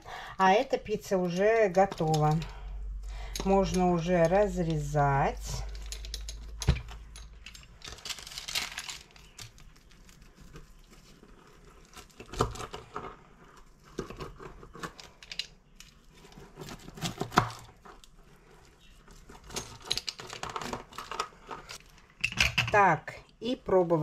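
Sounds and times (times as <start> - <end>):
paper crinkling: 7.4 - 15.2.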